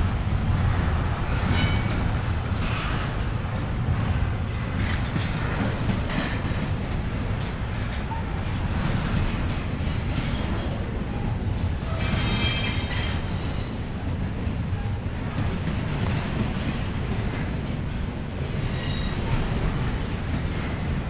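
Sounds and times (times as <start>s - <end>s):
freight train rumbling past: 0.0s - 21.0s.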